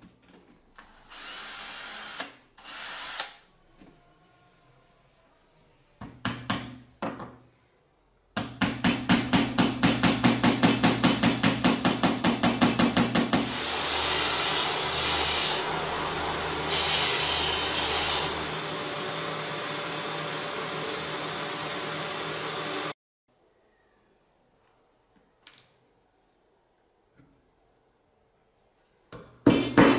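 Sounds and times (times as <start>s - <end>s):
wood sanding hiss: 13.4s - 18.8s
sanding machine running: 13.4s - 23.0s.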